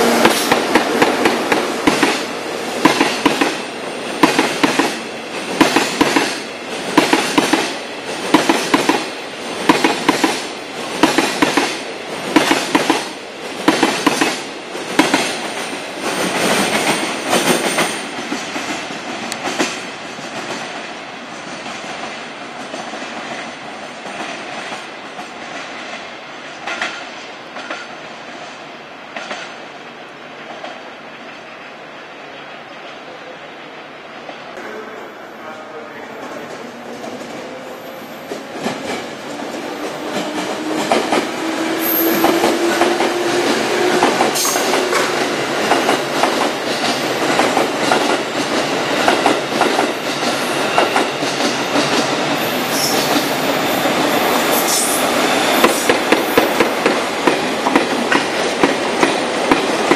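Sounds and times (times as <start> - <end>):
train wheels clattering over rails: 0.0 - 29.7, 36.2 - 59.9
train rumble: 33.6 - 59.9.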